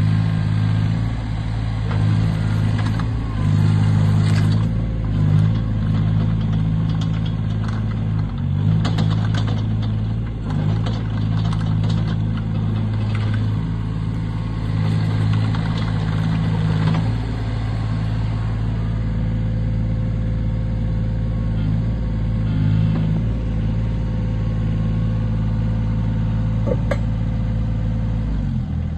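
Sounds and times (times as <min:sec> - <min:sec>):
diesel engine running: 0:00.0 - 0:28.9.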